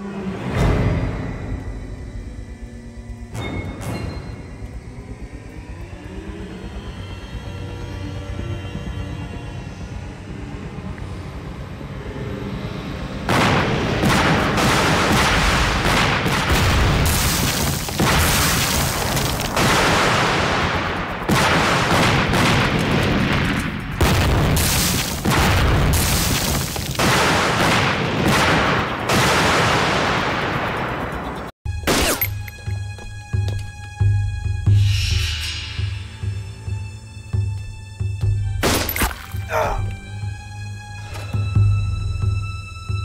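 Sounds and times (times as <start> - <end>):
loud explosions: 13.3 - 31.2.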